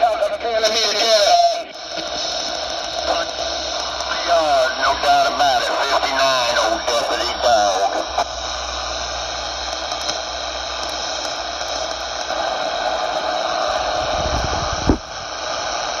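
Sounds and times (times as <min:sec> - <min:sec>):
radio static hiss: 0:00.0 - 0:16.0
radio click: 0:01.9 - 0:04.2, 0:09.6 - 0:15.2.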